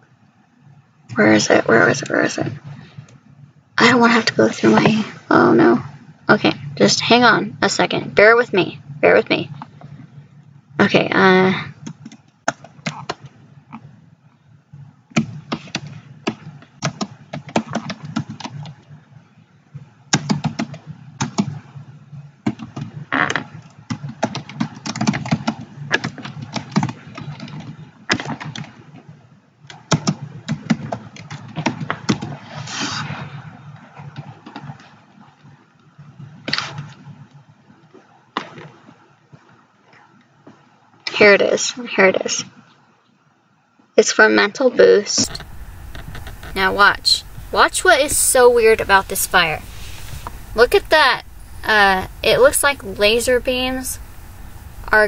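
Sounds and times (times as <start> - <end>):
computer keyboard typing: 20.2 - 21.6, 23.9 - 28.7.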